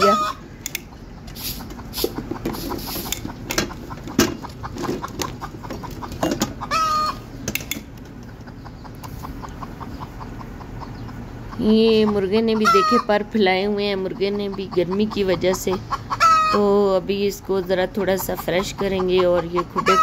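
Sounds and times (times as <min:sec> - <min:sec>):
chickens clucking: 0:00.0 - 0:20.0
sharp clicks: 0:00.6 - 0:01.0.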